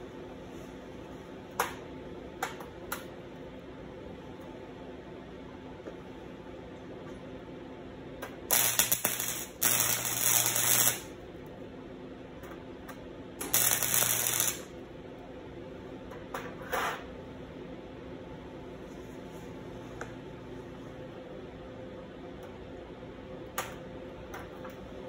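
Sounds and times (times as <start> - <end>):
arc welder bursts: 8.5 - 11.2, 13.4 - 14.8.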